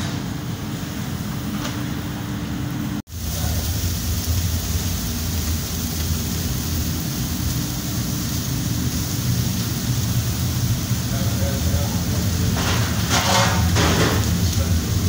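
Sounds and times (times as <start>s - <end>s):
chicken sizzling on grill: 3.0s - 15.0s.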